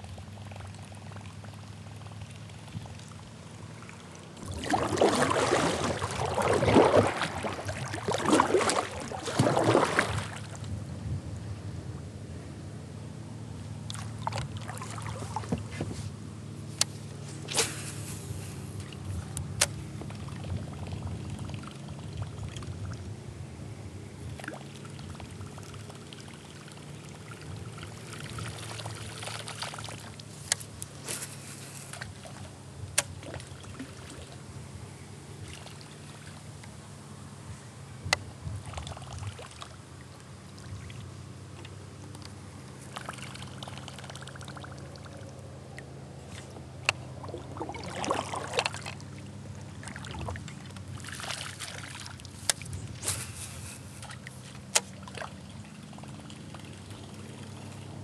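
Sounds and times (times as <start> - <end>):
water lapping against kayak hull: 0.0 - 10.7, 13.8 - 23.1, 24.2 - 34.5, 35.3 - 36.8, 38.0 - 58.0.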